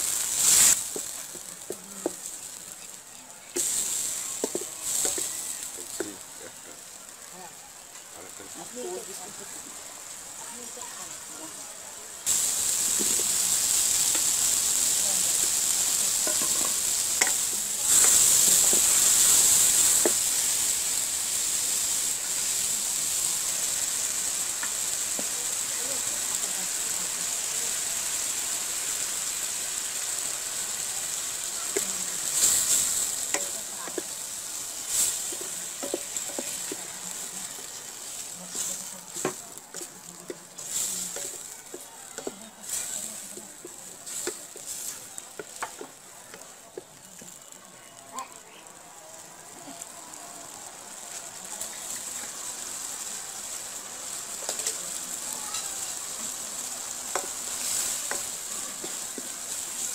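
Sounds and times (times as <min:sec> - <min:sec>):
curry sizzling in a pan: 0:00.0 - 0:59.9
spatula scraping a pan: 0:12.3 - 0:20.8, 0:31.7 - 0:46.0.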